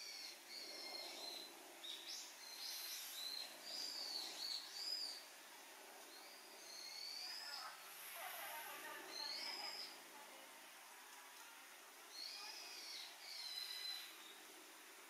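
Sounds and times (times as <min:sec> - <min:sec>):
birds calling: 0:00.0 - 0:05.4, 0:06.0 - 0:10.0, 0:12.1 - 0:14.7.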